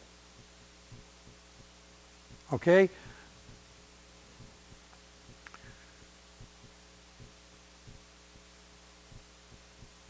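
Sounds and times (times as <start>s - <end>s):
low electrical hum: 0.0s - 10.0s
faint soft low thumps: 6.4s - 8.1s, 9.1s - 10.0s.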